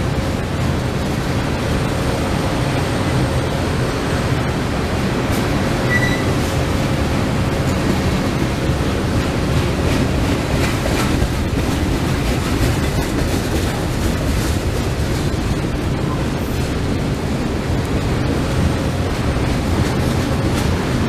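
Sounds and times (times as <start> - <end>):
freight train rumbling past: 0.0 - 21.0
high wheel squeal: 5.8 - 6.5.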